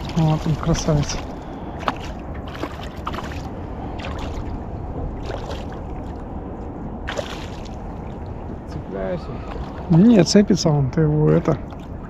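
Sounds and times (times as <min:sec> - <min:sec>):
splashes and knocks on boat: 0:00.0 - 0:06.1
low rumble of water and boat: 0:00.0 - 0:12.0.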